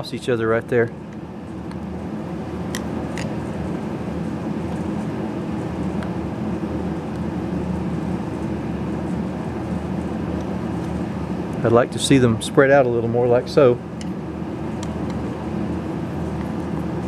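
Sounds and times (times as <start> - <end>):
heater low drone: 0.0 - 17.0.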